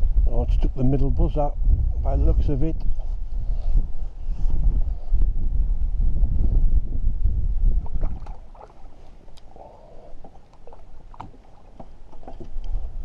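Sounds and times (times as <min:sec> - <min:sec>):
wind buffeting microphone: 0:00.0 - 0:13.0
fish splashing at water surface: 0:07.8 - 0:12.4.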